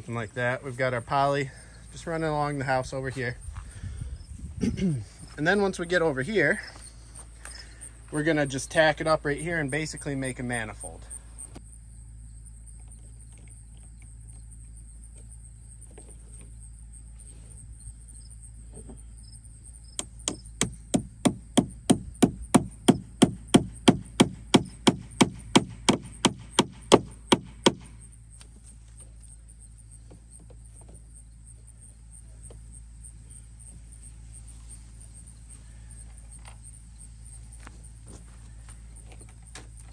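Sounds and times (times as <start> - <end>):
hammer tapping on wood: 20.0 - 27.8.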